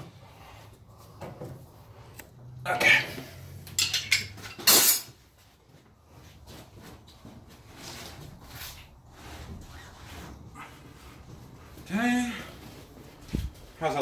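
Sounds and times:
tool handling noise: 0:03.6 - 0:05.3
metal hand tools clinking: 0:03.7 - 0:05.1.

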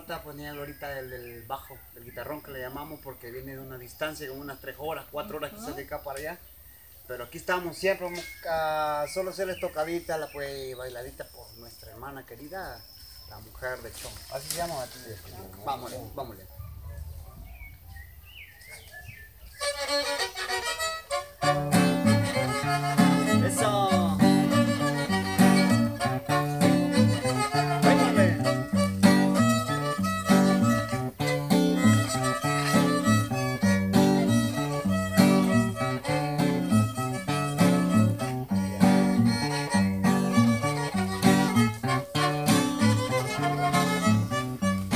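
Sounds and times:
acoustic guitar rhythm: 0:19.6 - 0:44.9
fiddle playing dance tune: 0:19.6 - 0:44.9.

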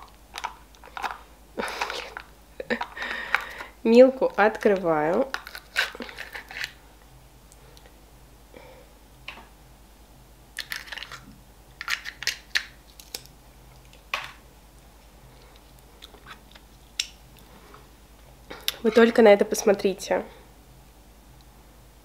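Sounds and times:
foil seal crinkling: 0:00.0 - 0:06.8, 0:10.6 - 0:13.3.

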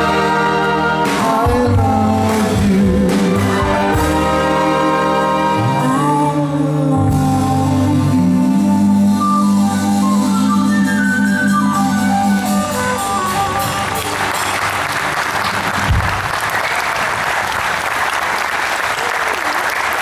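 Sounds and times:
audience applause: 0:13.6 - 0:20.0.

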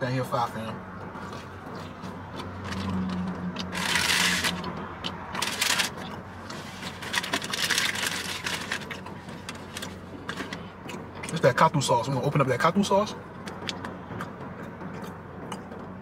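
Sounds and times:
food packaging rustling: 0:03.8 - 0:04.7, 0:05.4 - 0:06.0, 0:06.6 - 0:09.9.

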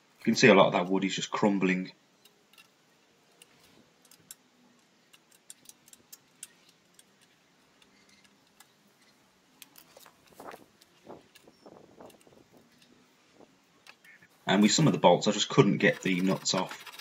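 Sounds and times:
screwdriver clicking on metal: 0:02.2 - 0:04.5, 0:05.1 - 0:08.8.

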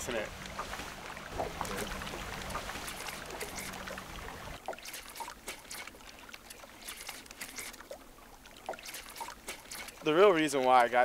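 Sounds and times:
low steady hum: 0:00.0 - 0:06.9
small water splashes: 0:00.0 - 0:11.0
water lapping at shoreline: 0:00.0 - 0:11.0.

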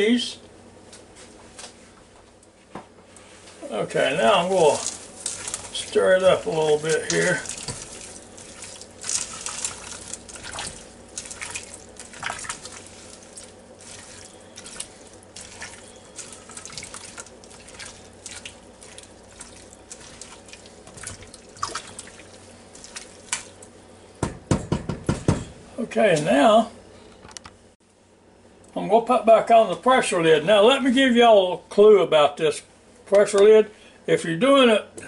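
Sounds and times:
spatula stirring wet food: 0:03.9 - 0:23.7.

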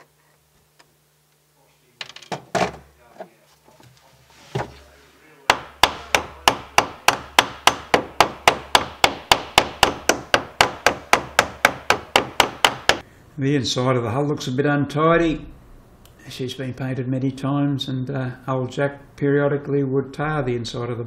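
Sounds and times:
hammer tapping on copper nail: 0:05.5 - 0:13.0.

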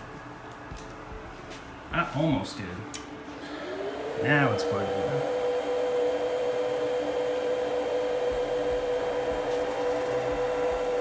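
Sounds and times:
cooling fan whirring: 0:00.0 - 0:11.0.

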